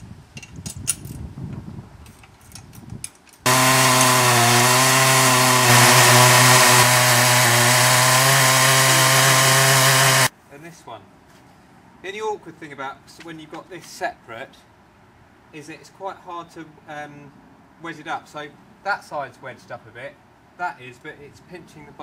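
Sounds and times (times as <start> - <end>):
chainsaw cutting log: 3.5 - 10.3.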